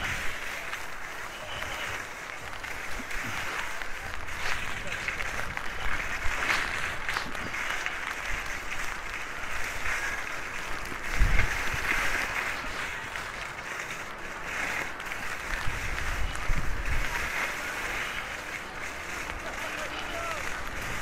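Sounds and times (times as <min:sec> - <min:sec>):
wind gust on microphone: 0:00.0 - 0:00.4, 0:08.4 - 0:13.3, 0:15.4 - 0:18.4
skis sliding over snow: 0:00.0 - 0:21.0.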